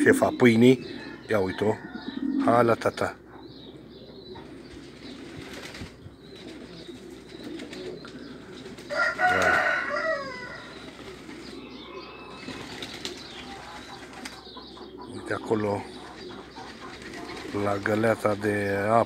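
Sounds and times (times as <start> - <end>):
pigeons cooing: 0.0 - 19.0
pigeon wing flaps: 4.9 - 8.0, 8.7 - 9.8, 12.4 - 13.2, 16.7 - 17.8
loud falling bird call: 6.8 - 14.6.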